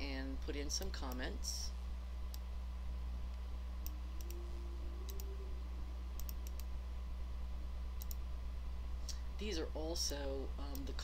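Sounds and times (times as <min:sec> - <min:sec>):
steady low hum: 0:00.0 - 0:11.0
computer mouse clicking: 0:03.8 - 0:04.4, 0:05.1 - 0:05.3, 0:06.2 - 0:06.7, 0:08.0 - 0:08.2.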